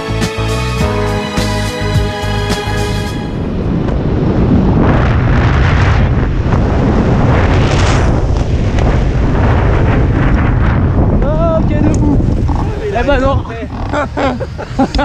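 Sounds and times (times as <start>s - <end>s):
wind buffeting microphone: 3.2s - 15.0s.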